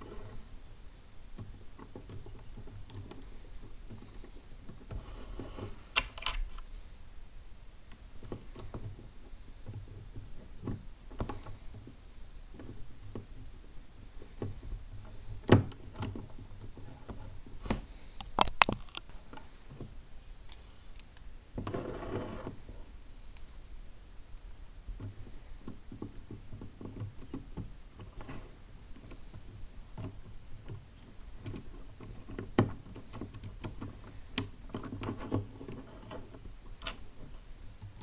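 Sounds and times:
plastic parts clicking and rattling: 0:01.4 - 0:06.7, 0:14.2 - 0:19.9, 0:25.0 - 0:38.0.

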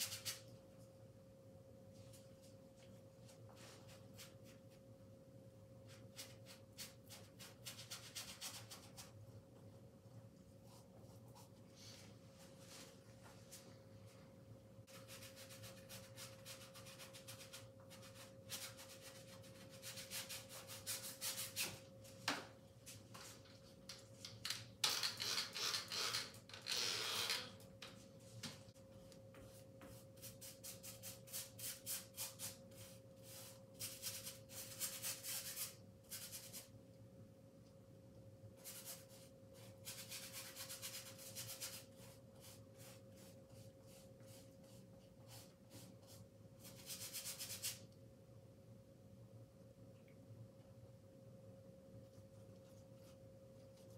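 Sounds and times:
faint steady hum: 0:00.0 - 0:53.9
paintbrush scrubbing canvas: 0:14.9 - 0:21.8, 0:38.6 - 0:47.8.

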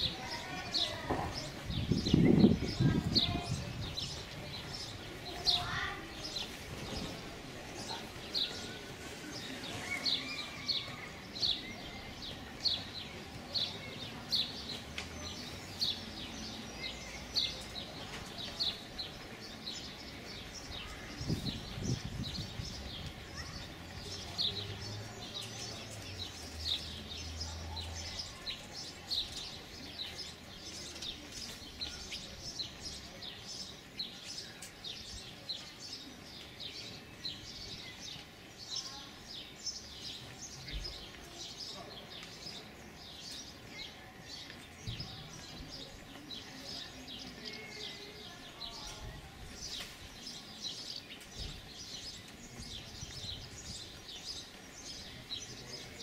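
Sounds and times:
faint outdoor background noise: 0:00.0 - 0:56.0.

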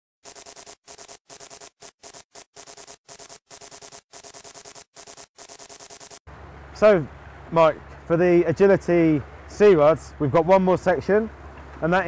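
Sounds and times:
typing text reveal ticking: 0:00.2 - 0:06.2.

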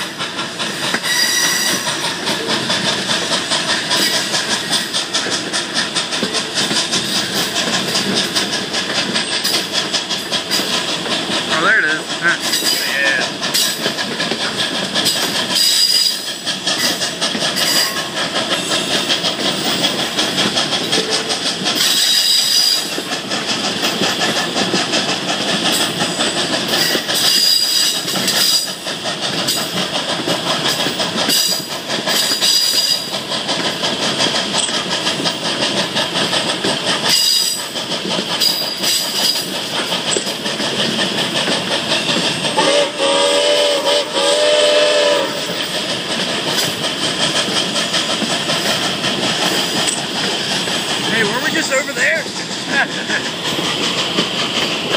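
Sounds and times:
train wheels rumbling on rails: 0:00.0 - 0:54.9
steam locomotive whistle: 0:01.0 - 0:01.9, 0:15.6 - 0:16.3, 0:42.6 - 0:45.6
high wheel squeals: 0:01.0 - 0:02.0, 0:15.1 - 0:17.0, 0:21.8 - 0:22.9, 0:26.8 - 0:28.7.

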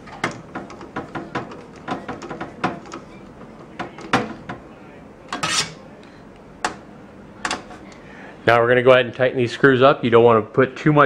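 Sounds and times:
short scrape: 0:05.4 - 0:05.8.

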